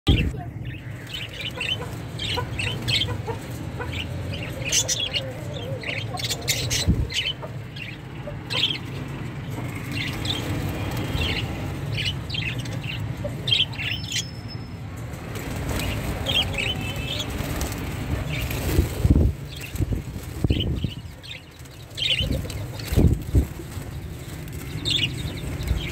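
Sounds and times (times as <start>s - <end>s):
budgerigars chirping: 0.6s - 14.5s, 19.5s - 25.9s.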